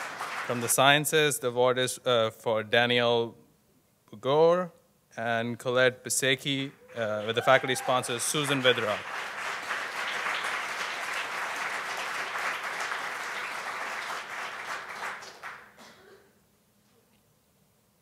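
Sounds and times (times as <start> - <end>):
audience applauding: 0.0 - 0.9, 6.9 - 15.8.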